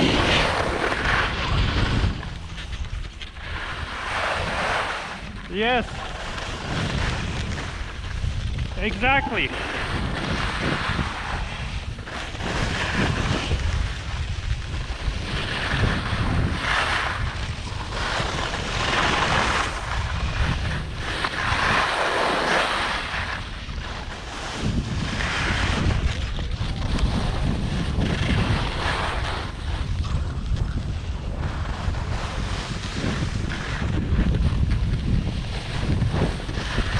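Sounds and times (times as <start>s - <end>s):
wind buffeting microphone: 0.0s - 36.9s
skis hissing on snow: 8.7s - 13.6s.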